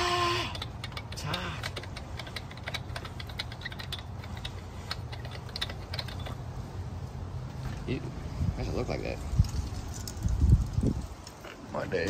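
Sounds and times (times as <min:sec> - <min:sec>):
hands clicking and tapping: 0:00.6 - 0:06.4.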